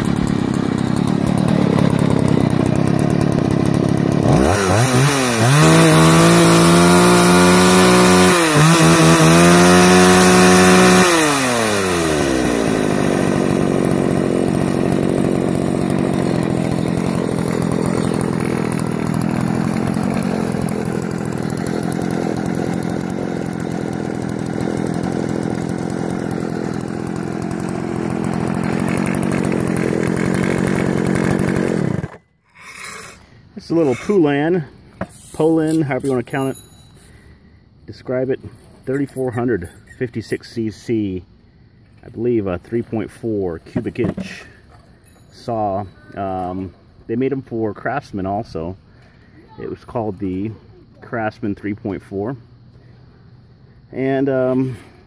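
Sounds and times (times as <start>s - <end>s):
chainsaw idling and revving: 0.0s - 34.7s, 35.4s - 37.2s, 38.8s - 40.4s.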